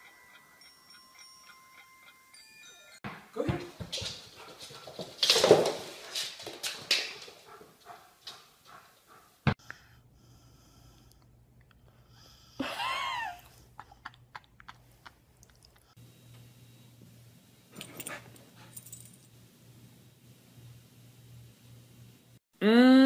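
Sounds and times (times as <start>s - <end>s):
dogs scuffling: 3.6s - 8.8s.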